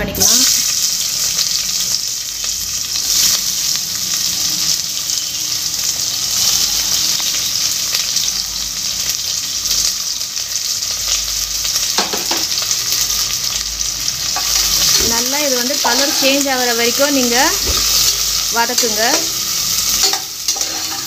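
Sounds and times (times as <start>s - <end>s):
onions sizzling in hot oil: 0.0s - 21.0s.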